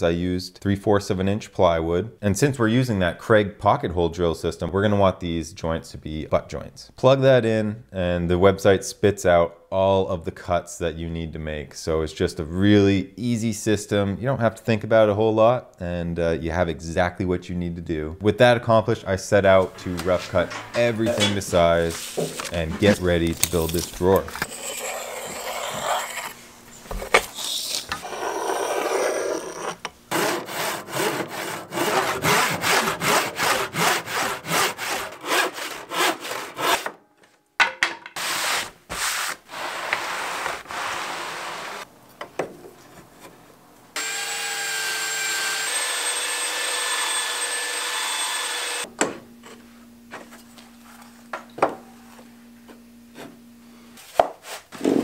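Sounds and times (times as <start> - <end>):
hand saw strokes: 19.7 - 26.4, 27.4 - 36.9
saw motor running: 44.0 - 48.9.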